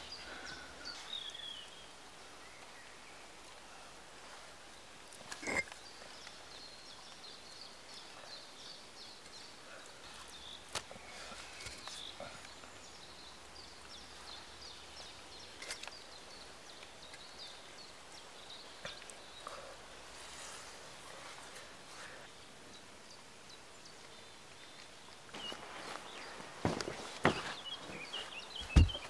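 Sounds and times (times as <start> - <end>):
small birds chirping: 0.0 - 29.0
concrete pipes knocking and scraping: 5.3 - 5.8.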